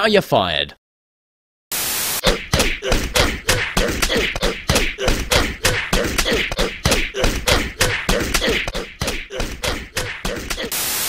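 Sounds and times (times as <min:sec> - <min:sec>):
angry snarling cartoon voice looped: 0:02.2 - 0:11.0.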